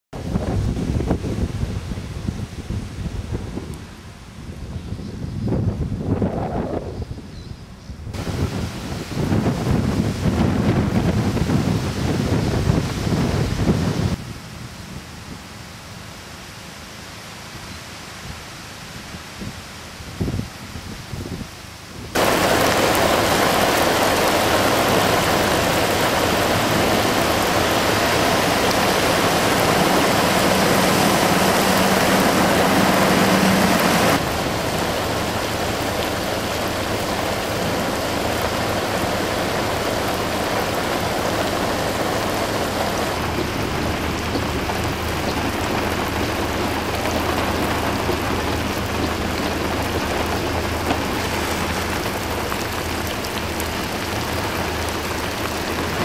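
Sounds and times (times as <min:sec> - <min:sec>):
heavy rain pouring: 0:08.1 - 0:14.4, 0:15.3 - 0:56.0
low engine drone: 0:22.2 - 0:56.0.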